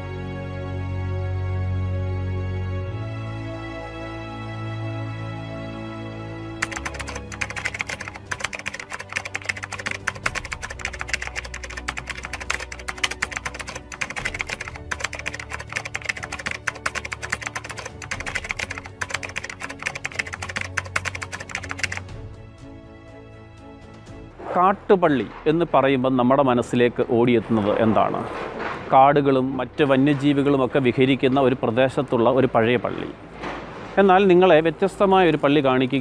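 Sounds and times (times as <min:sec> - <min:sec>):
soft background music: 0:00.0 - 0:36.0
keyboard typing clicks: 0:06.6 - 0:22.0.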